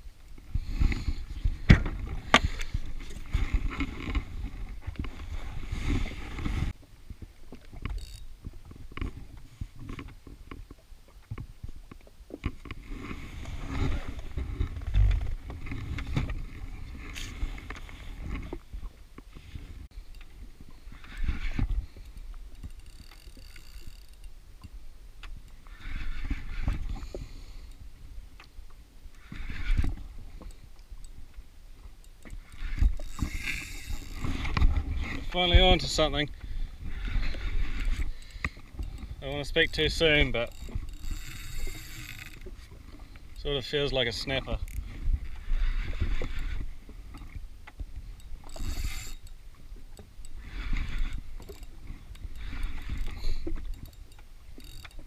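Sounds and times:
wind rumbling on microphone: 0.0s - 24.0s, 32.4s - 54.8s
fishing reel knocks and clicks: 7.8s - 8.3s, 21.0s - 26.4s, 32.0s - 34.8s, 37.0s - 42.6s, 48.2s - 55.0s.

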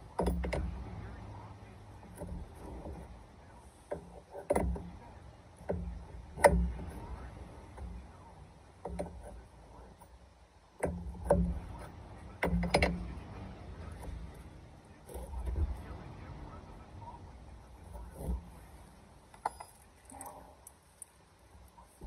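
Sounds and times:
wrench clinking on metal: 19.3s - 21.2s.

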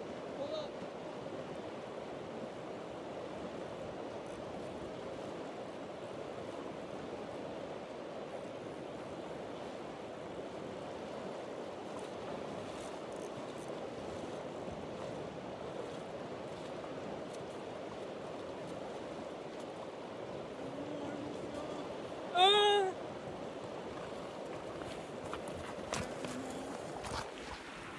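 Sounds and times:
river water rushing over rocks: 10.6s - 27.9s.

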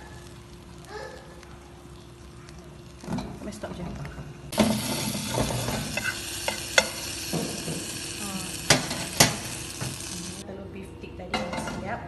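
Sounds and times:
omelette sizzling in frying pan: 4.5s - 10.4s
spatula scraping and knocking pan: 4.6s - 8.0s.

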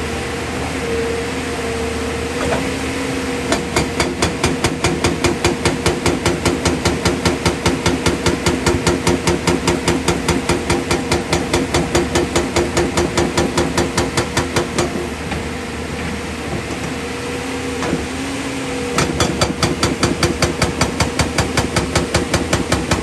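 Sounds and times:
diesel engine running: 0.0s - 23.0s
hydraulic rock breaker hammering: 3.5s - 15.5s, 18.9s - 23.0s.

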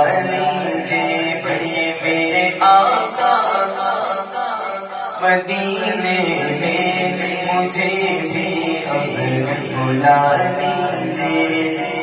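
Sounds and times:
man singing into a microphone: 0.0s - 12.0s.

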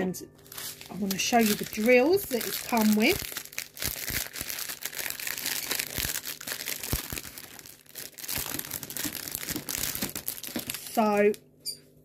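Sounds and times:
plastic bags crinkling: 0.4s - 11.4s.

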